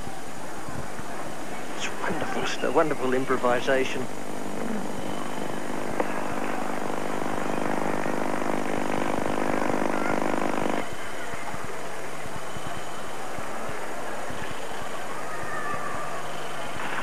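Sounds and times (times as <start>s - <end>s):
cricket broadcast: 0.2s - 17.0s
steady buzzing drone: 1.4s - 17.0s.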